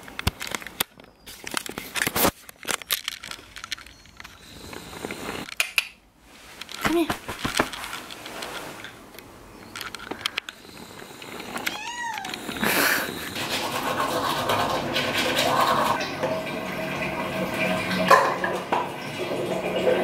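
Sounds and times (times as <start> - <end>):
light clicks and rustling: 0.0 - 12.6
cat meowing: 11.6 - 12.6.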